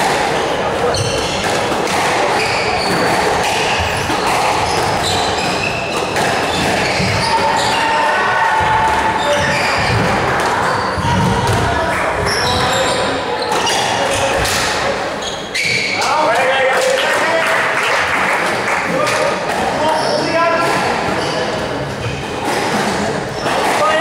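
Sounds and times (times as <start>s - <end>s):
shoes squeaking on wooden floor: 0.8s - 8.1s, 9.0s - 16.2s, 19.8s - 23.9s
squash ball struck by racquet: 1.0s - 7.7s, 8.6s - 12.4s.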